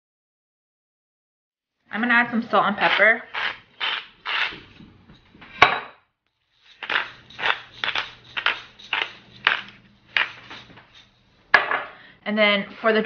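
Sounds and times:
salt and pepper grinders grinding: 2.8s - 4.8s, 6.5s - 11.3s.

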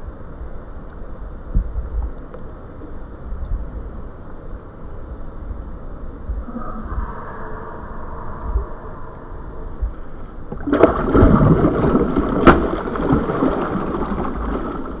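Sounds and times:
fish splashing: 10.5s - 15.0s
water sloshing: 10.5s - 15.0s.

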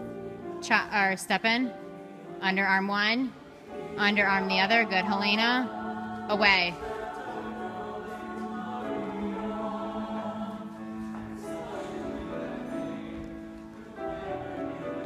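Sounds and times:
music with long held chords: 3.4s - 15.0s.

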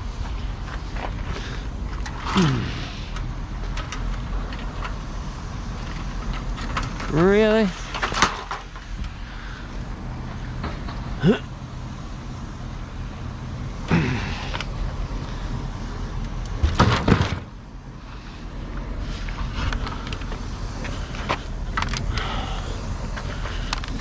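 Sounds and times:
steady low hum: 0.0s - 24.0s
scrap metal clanking and scraping: 5.8s - 9.2s.

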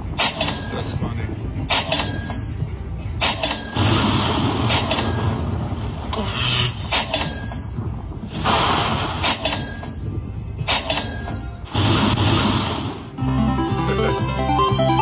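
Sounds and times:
steady low rumble: 0.0s - 15.0s
noisy lightning-strike burst: 3.8s - 6.2s, 8.3s - 9.2s, 11.6s - 13.2s
slot machine high chime: 13.2s - 15.0s.

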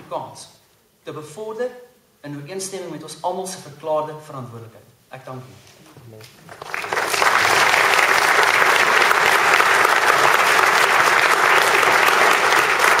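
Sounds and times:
audience applauding: 6.5s - 13.0s.

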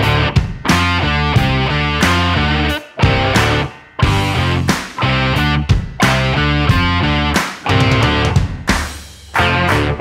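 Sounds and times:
rock music with distorted guitar: 0.0s - 10.0s.

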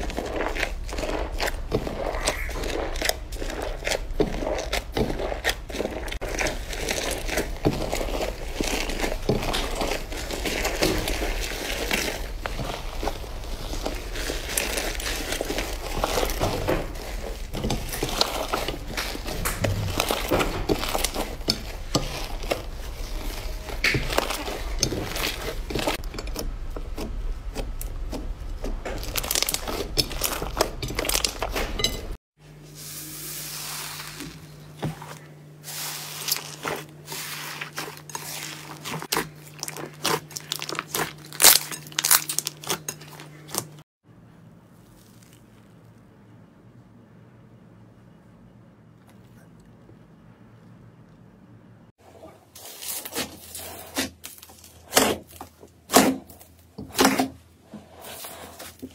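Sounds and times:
slime squelching: 0.0s - 32.2s, 32.8s - 43.8s.

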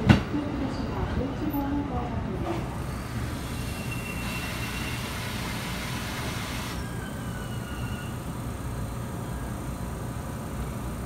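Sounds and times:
hiss: 3.2s - 6.8s.

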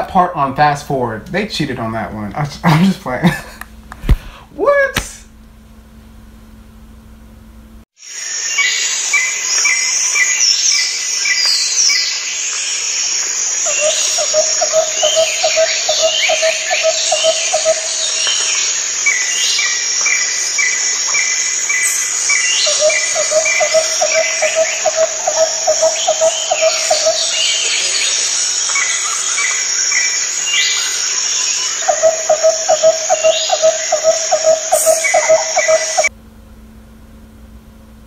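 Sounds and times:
high insect buzz: 8.0s - 36.1s
high chirps and trills: 8.4s - 36.1s
repeated low bird call: 13.7s - 36.1s.

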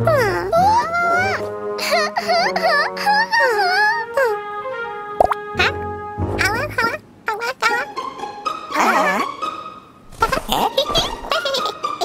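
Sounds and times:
cartoon girl sobbing: 0.0s - 4.5s
background music: 0.0s - 12.0s.

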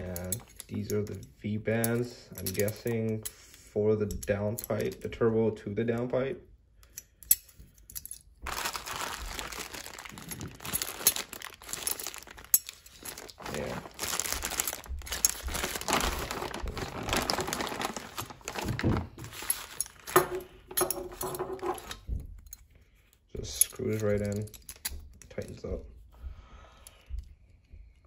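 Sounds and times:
plastic bags crinkling: 8.5s - 22.1s.

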